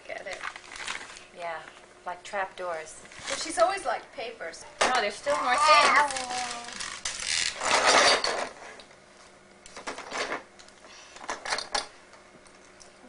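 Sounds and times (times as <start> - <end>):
plastic toys clattering: 5.3 - 8.6.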